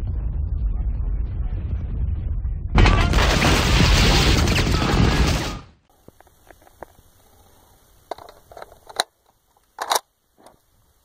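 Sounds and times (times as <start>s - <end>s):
rifle metallic clicks: 8.1s - 10.1s.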